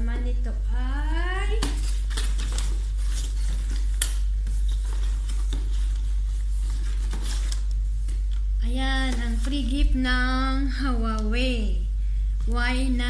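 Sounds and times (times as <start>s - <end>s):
steady low hum: 0.0s - 13.0s
packaging rustling: 1.6s - 9.6s.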